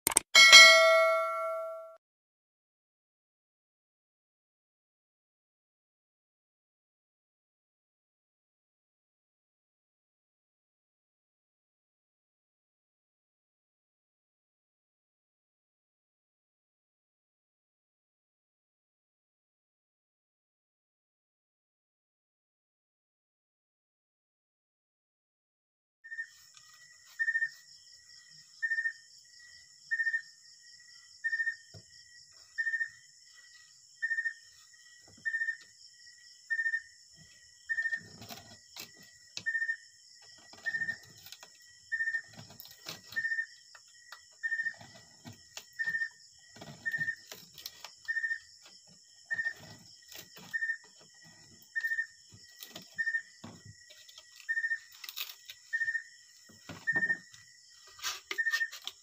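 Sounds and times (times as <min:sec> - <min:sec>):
knife shaving bamboo stick: 0:37.2 - 0:39.5, 0:40.4 - 0:53.0, 0:53.6 - 0:59.0.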